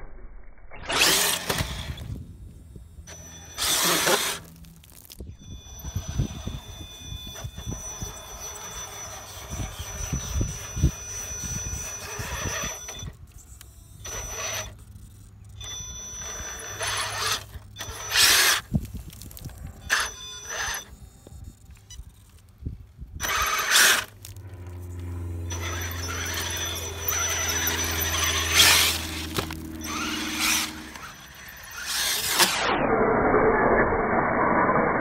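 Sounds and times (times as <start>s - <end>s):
electric motor whining: 0.8s - 33.4s
wheels churning mud: 23.2s - 32.5s.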